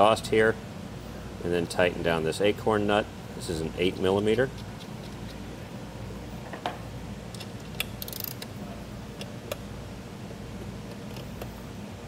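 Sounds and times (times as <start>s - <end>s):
steady low hum: 0.0s - 12.0s
wrench clicking on metal: 7.3s - 8.5s.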